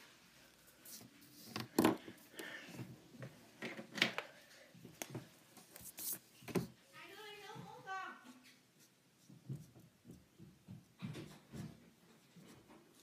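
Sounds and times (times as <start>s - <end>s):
markers clicking and knocking on table: 9.2s - 11.7s.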